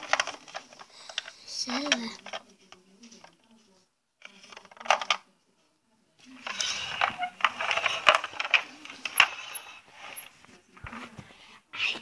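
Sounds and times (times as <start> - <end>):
plastic toys clattering: 0.0 - 5.3, 6.3 - 11.3.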